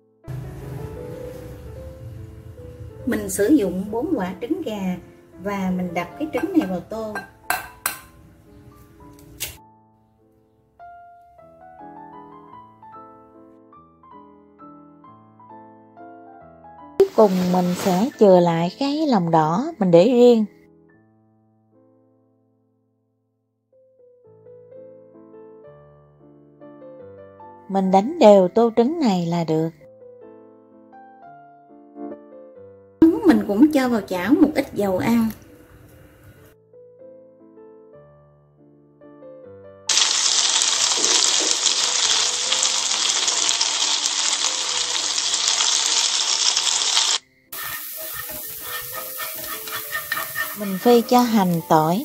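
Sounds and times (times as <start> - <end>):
faint piano music: 0.0 - 46.0, 47.2 - 52.0
garlic sizzling in hot oil: 17.0 - 18.2, 39.9 - 52.0.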